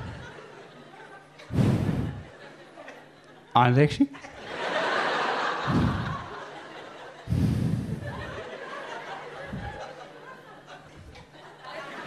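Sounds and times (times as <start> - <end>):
audience laughing: 0.0 - 3.5, 4.2 - 12.0.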